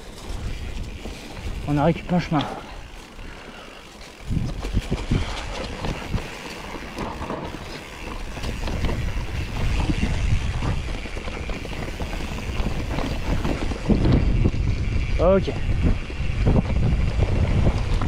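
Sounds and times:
bike rolling on rough track: 0.0 - 18.0
wind buffeting microphone: 0.0 - 18.0
bike knocking over bumps: 4.3 - 14.8.

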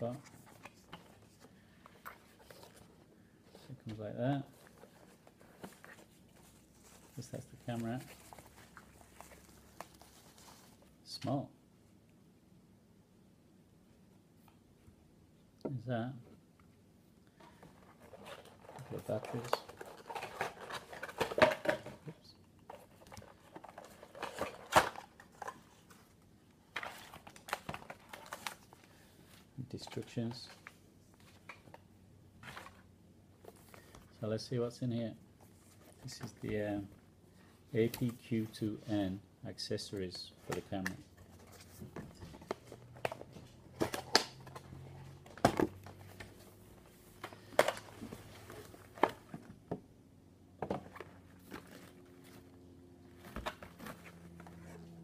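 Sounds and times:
cardboard and paper rustling: 0.0 - 3.8, 4.5 - 10.9, 17.4 - 31.8, 32.4 - 34.2, 40.3 - 49.6, 50.6 - 55.0.

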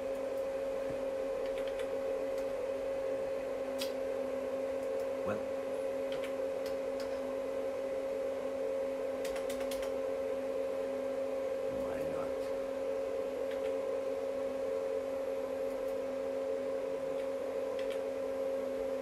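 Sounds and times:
steady electrical hum: 0.0 - 19.0
computer mouse clicks: 1.4 - 2.5, 6.1 - 7.2, 9.2 - 10.0, 13.5 - 13.8, 17.1 - 18.1.

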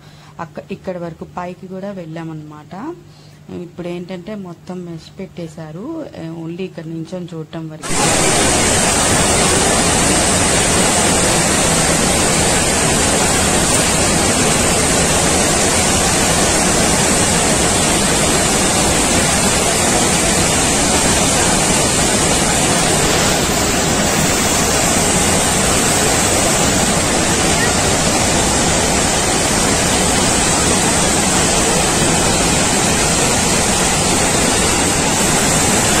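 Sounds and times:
waterfall rushing: 7.8 - 36.0.

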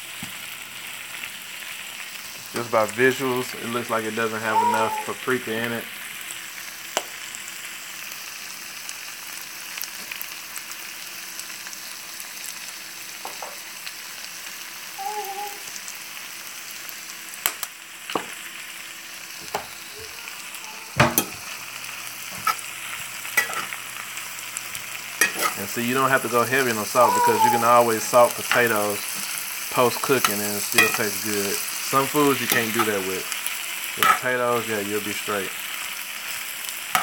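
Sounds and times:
food sizzling in a skillet: 0.0 - 37.0
metal spoon scraping a pan: 22.3 - 22.7, 23.4 - 23.8, 25.2 - 25.6, 30.2 - 31.3, 34.0 - 34.2.

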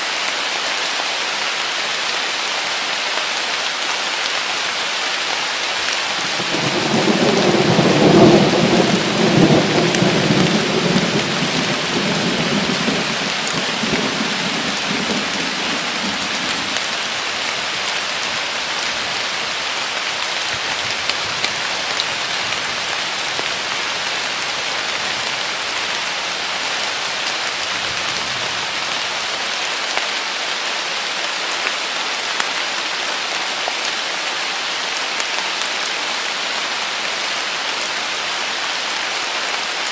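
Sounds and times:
heavy rain: 0.0 - 39.9
thunder rolling: 6.4 - 16.8.

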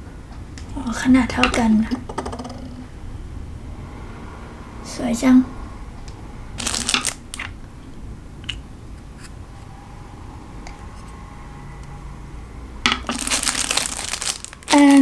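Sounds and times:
plastic wrapper crinkling: 6.6 - 7.5, 13.0 - 15.0.

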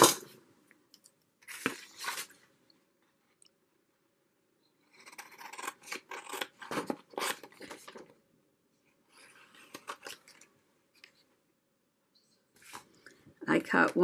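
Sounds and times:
scissors snipping paper: 4.9 - 8.0.

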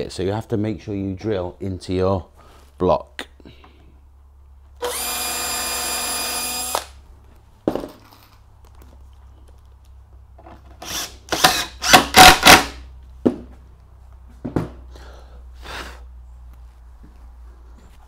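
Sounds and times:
cordless drill whining: 4.8 - 7.0, 10.8 - 12.8
power tool driving screws: 4.8 - 7.0, 10.7 - 12.8.

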